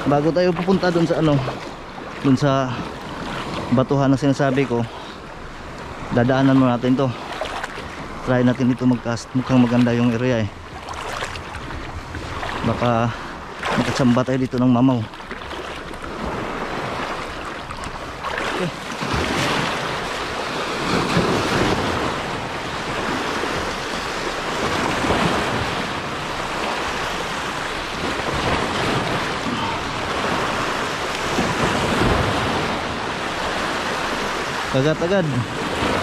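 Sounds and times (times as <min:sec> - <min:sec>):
waves washing over rocks: 0:00.0 - 0:36.0.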